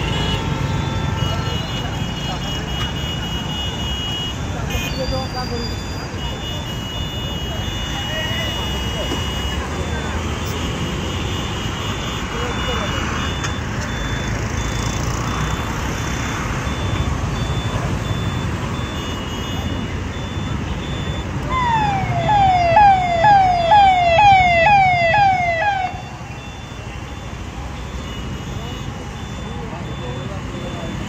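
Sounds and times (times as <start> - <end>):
street din: 0.0 - 31.0
police siren wailing: 11.8 - 31.0.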